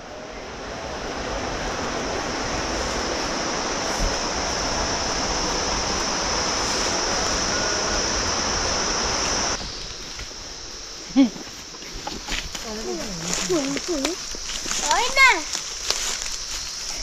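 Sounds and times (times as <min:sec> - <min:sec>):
high-pitched drone: 0:00.0 - 0:10.8
steady rushing noise: 0:00.0 - 0:17.0.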